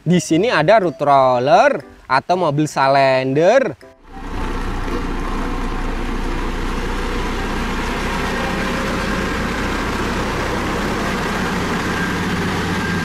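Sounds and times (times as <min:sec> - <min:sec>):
road roller diesel engine running: 0:04.0 - 0:13.0.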